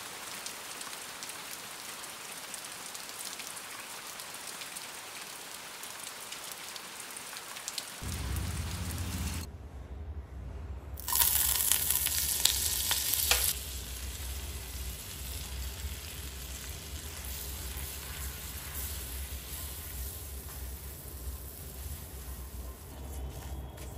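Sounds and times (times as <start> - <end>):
low hum: 8.0 - 19.4
butter sizzling in a pan: 11.0 - 22.9.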